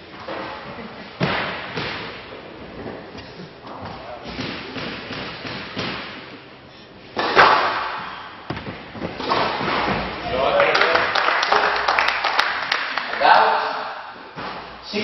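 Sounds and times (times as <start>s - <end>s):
squash ball hits: 1.2s - 2.2s, 3.8s - 6.4s, 7.2s - 10.2s.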